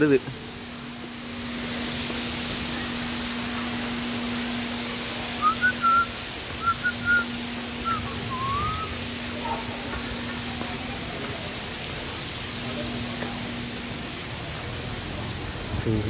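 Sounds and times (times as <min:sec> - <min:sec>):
low hum and hiss: 0:00.0 - 0:16.0
person whistling: 0:05.4 - 0:08.9.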